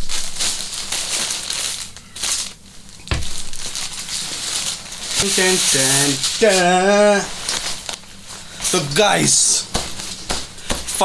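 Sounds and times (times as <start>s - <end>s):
plastic bag crinkling: 0.0s - 8.2s.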